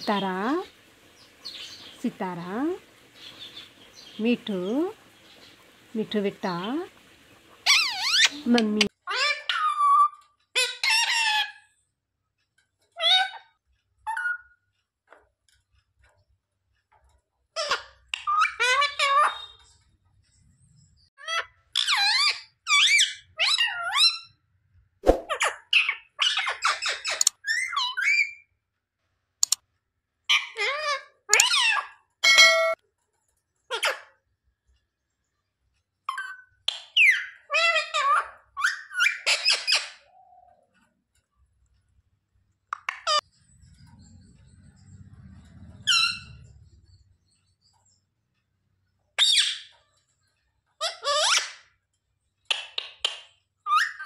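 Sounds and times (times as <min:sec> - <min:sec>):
parakeet squawking: 0:07.6 - 0:11.7, 0:17.6 - 0:19.6, 0:36.1 - 0:40.1, 0:45.8 - 0:46.5, 0:49.2 - 0:49.7, 0:50.8 - 0:51.7
sharp clicks: 0:29.4 - 0:29.6
faint low rumble: 0:43.3 - 0:47.6.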